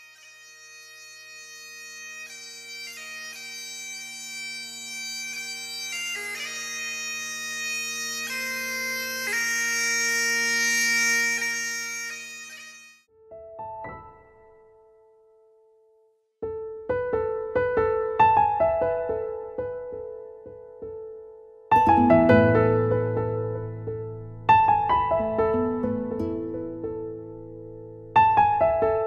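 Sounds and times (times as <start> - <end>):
bagpipes playing slow melody: 0.0 - 13.1
piano notes: 13.1 - 15.7, 16.4 - 29.0.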